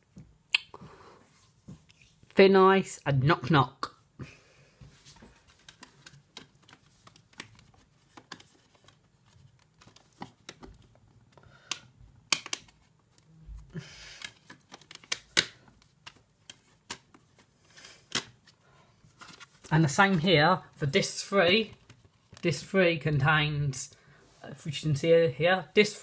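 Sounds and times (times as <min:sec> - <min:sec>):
plastic case clicks: 0:11.7 - 0:12.8.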